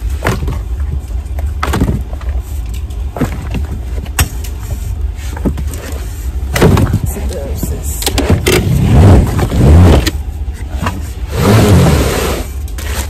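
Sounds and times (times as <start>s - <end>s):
shoes knocking and rustling: 0.0s - 8.6s
low rumble: 0.0s - 13.0s.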